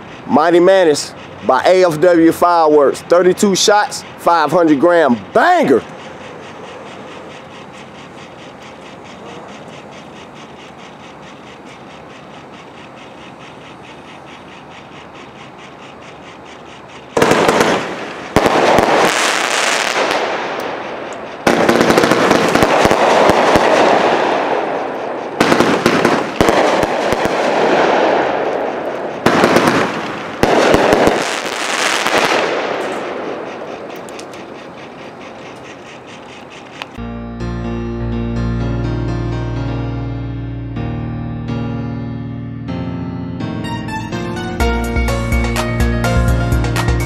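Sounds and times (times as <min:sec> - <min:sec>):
firework volleys: 0:17.0 - 0:34.3
firework crackling: 0:17.2 - 0:33.6.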